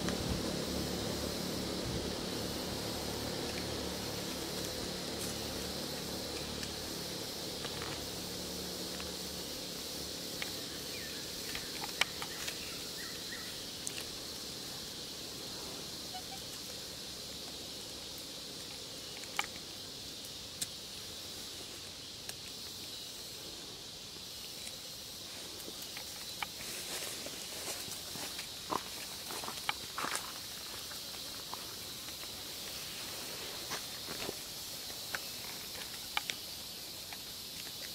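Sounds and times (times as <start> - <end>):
high-pitched insect chorus: 0.0 - 37.9.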